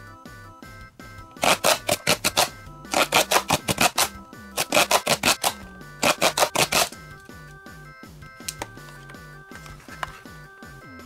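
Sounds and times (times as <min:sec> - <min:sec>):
light background music: 0:00.0 - 0:11.0
packaging crackling: 0:01.4 - 0:07.0.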